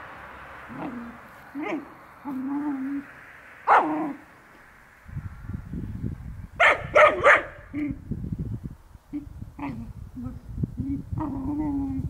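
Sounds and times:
low rustling: 0:00.0 - 0:10.8
puppy barking: 0:00.7 - 0:02.7, 0:03.6 - 0:04.2, 0:06.6 - 0:08.0
puppy yelp: 0:06.6 - 0:08.0.

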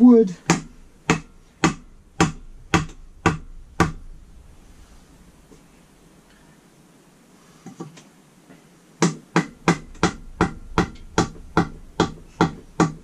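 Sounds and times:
hammer striking wooden drift: 0:00.4 - 0:04.1, 0:09.0 - 0:13.0.

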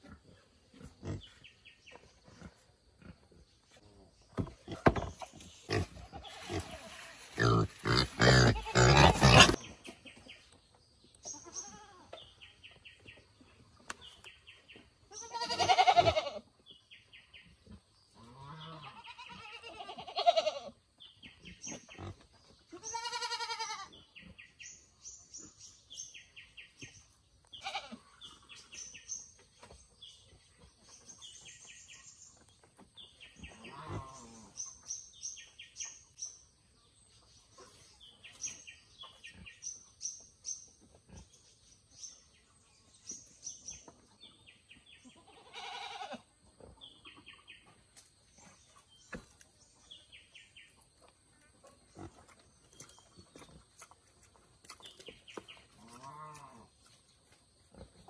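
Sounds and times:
small birds chirping: 0:00.0 - 0:58.0
animal cries: 0:15.2 - 0:16.4, 0:18.6 - 0:20.7, 0:45.3 - 0:46.2.

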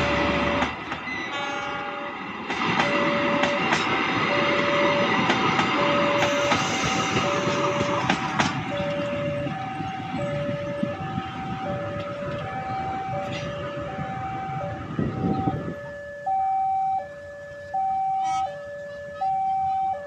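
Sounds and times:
two-tone level crossing alarm: 0:00.0 - 0:02.0, 0:02.7 - 0:20.0
train wheels rumbling: 0:00.0 - 0:16.1.

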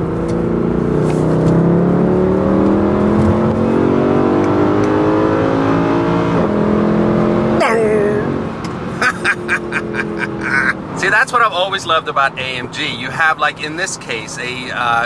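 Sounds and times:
car engine accelerating hard: 0:00.0 - 0:11.3.

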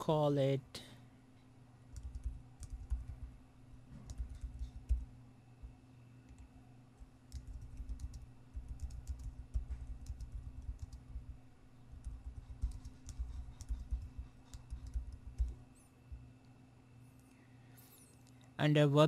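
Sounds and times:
faint steady hum: 0:00.0 - 0:19.0
typing on computer keyboard: 0:01.9 - 0:03.2, 0:04.0 - 0:05.0, 0:07.3 - 0:11.3, 0:11.9 - 0:15.6.

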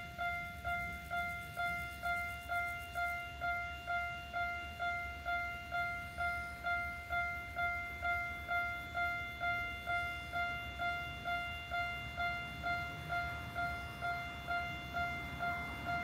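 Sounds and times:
level crossing alarm ringing: 0:00.0 - 0:16.0.

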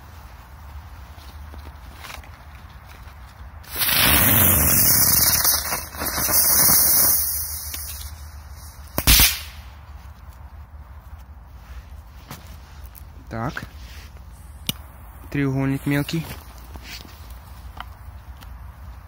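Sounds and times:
firecracker hissing: 0:03.6 - 0:09.8
firecracker bang: 0:03.7 - 0:08.1, 0:08.9 - 0:09.7.

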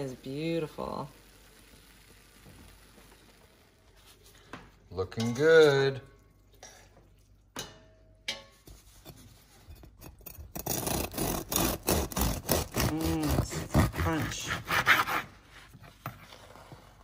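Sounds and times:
bread knife sawing crust: 0:10.5 - 0:15.7.

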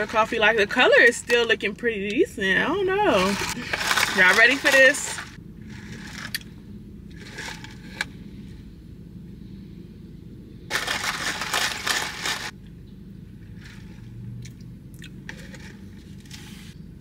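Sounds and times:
ice rattling in plastic cup: 0:03.0 - 0:06.4, 0:10.7 - 0:12.5.

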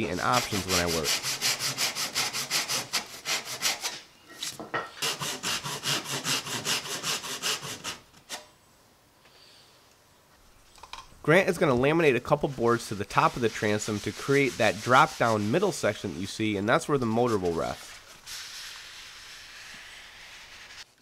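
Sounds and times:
hand saw cutting wood: 0:00.0 - 0:04.0, 0:04.9 - 0:08.5, 0:12.4 - 0:16.0.

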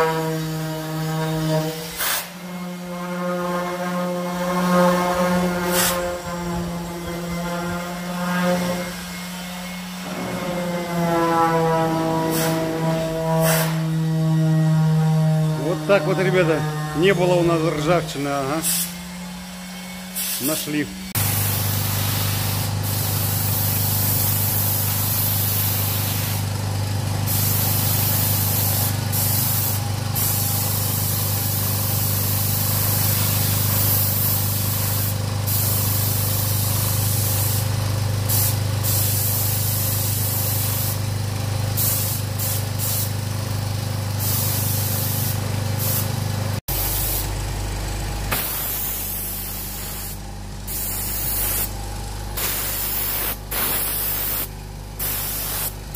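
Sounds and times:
spray gun hissing: 0:00.0 - 0:14.0, 0:17.5 - 0:19.1, 0:20.1 - 0:26.5, 0:27.2 - 0:37.7, 0:38.3 - 0:41.0, 0:41.8 - 0:43.2, 0:44.2 - 0:46.1, 0:46.7 - 0:47.3, 0:48.3 - 0:55.9
steady low hum: 0:00.1 - 0:31.1.

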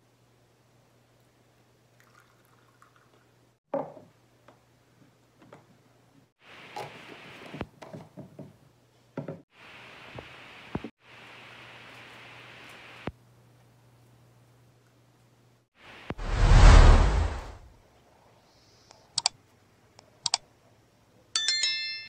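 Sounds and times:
liquid pouring into cup: 0:02.0 - 0:03.2
steady hiss: 0:09.6 - 0:13.1.

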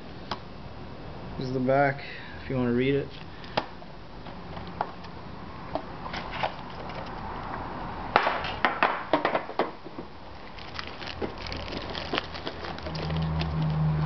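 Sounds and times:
foil wrapper crinkle: 0:10.4 - 0:14.0.

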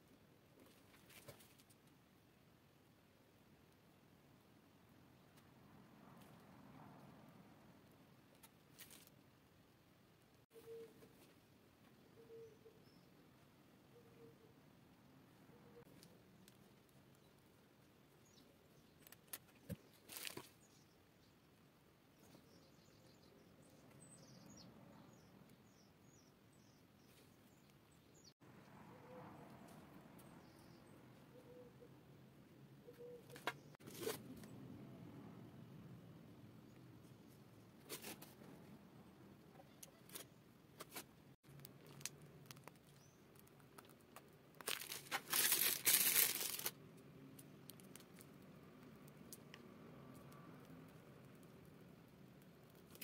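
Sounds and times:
plastic bag crinkling: 0:44.6 - 0:46.8.

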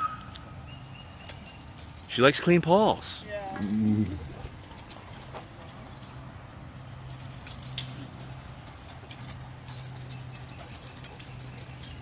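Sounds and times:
paw clicks and tag jingles: 0:04.4 - 0:06.1, 0:07.0 - 0:12.0.

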